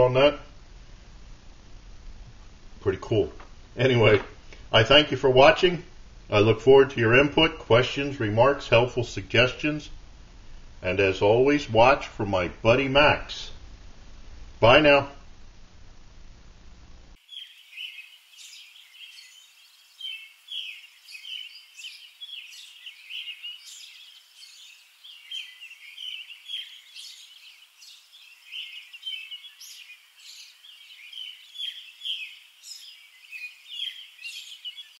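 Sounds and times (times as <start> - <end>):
faint hiss: 0.0 - 35.0
birds chirping and singing: 17.2 - 35.0.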